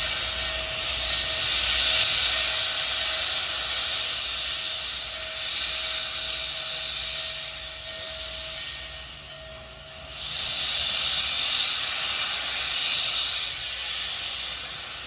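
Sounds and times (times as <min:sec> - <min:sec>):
steam locomotive hissing: 0:00.0 - 0:15.0.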